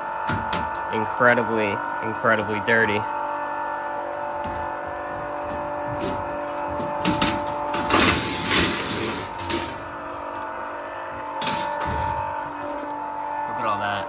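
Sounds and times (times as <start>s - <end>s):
steady background hum: 0.0s - 14.0s
sheet metal rattling and scraping: 5.4s - 9.9s.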